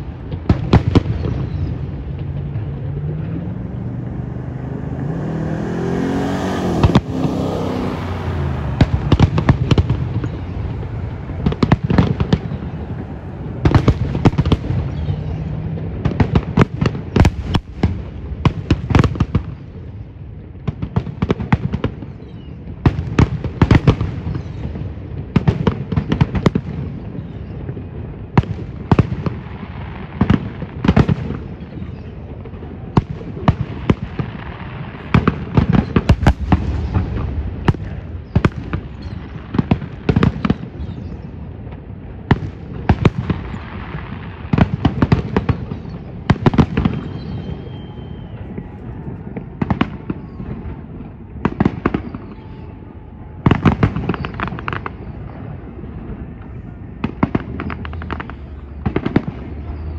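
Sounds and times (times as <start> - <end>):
low rumble: 0.0 - 16.2
fireworks bangs: 0.0 - 59.9.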